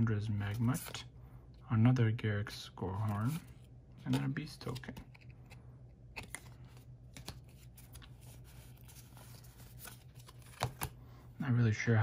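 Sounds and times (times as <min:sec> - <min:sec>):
steady low hum: 0:00.0 - 0:12.0
cards rustling and clicking: 0:02.9 - 0:11.1.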